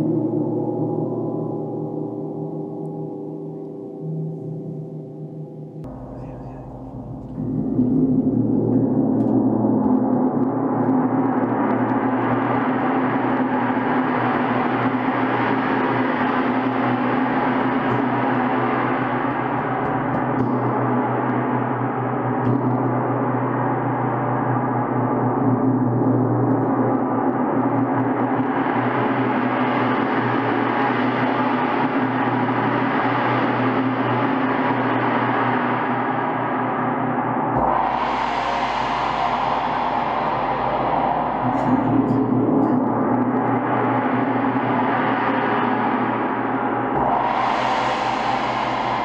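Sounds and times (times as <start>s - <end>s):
large gong ringing: 1.2s - 9.9s, 37.6s - 44.9s.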